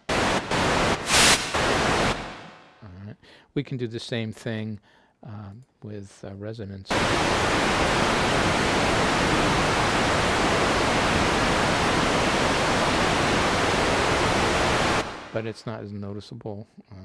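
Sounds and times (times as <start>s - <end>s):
filtered white noise hiss: 0.0s - 2.8s, 6.9s - 16.0s.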